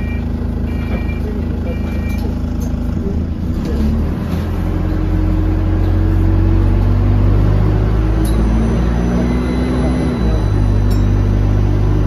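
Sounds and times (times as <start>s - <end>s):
bus diesel engine revving: 0.0s - 12.0s.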